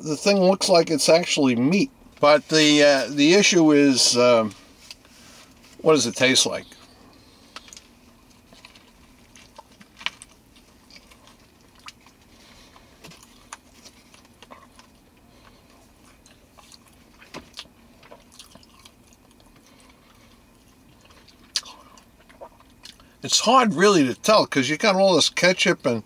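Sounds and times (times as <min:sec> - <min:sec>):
man chewing: 0:07.2 - 0:23.2.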